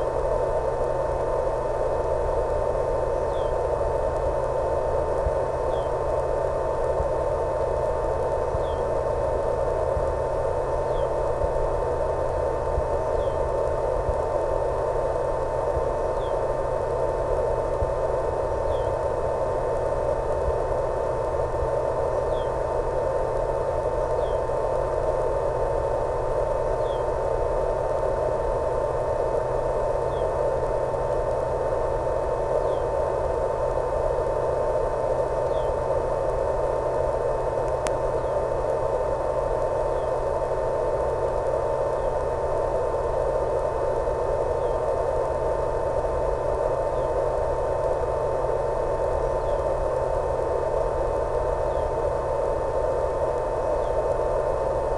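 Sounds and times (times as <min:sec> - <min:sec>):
constant single tone: 0:00.0 - 0:54.9
radio static hiss: 0:00.0 - 0:54.9
faint tick: 0:04.1 - 0:04.3, 0:37.6 - 0:38.0.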